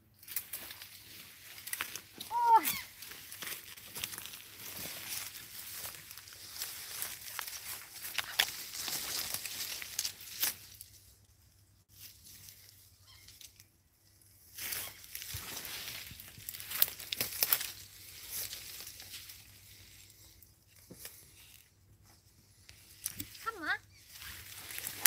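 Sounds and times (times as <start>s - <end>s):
leaves rustling underfoot: 0.1s - 25.0s
twigs cracking underfoot: 0.2s - 11.2s, 14.6s - 21.8s, 22.7s - 23.4s, 24.0s - 25.0s.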